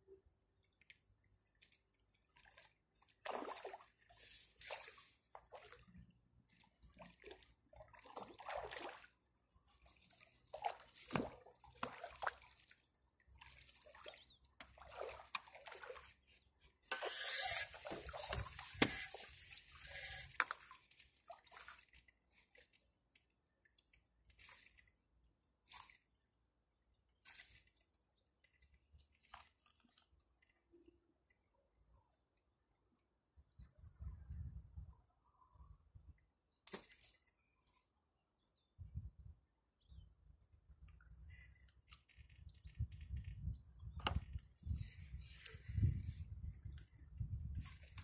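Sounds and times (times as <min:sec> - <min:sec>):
fish splashing at the surface: 0:02.3 - 0:05.9, 0:07.1 - 0:09.1, 0:14.8 - 0:16.0.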